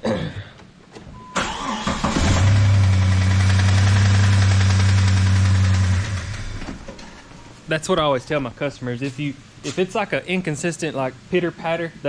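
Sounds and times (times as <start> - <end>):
car engine running: 2.2 - 6.7
engine knock: 3.1 - 6.3.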